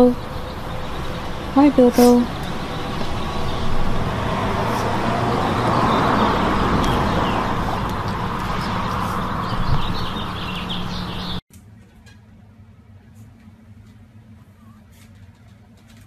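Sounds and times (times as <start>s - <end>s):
small birds chirping: 0.0s - 11.4s
outdoor background rush: 0.0s - 16.0s.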